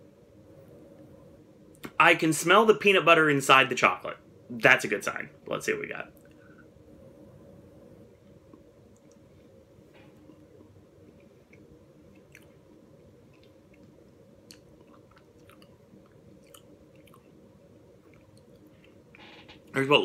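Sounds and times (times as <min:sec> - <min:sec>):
steady low hum: 0:00.0 - 0:20.0
faint chewing with mouth clicks: 0:08.2 - 0:19.2.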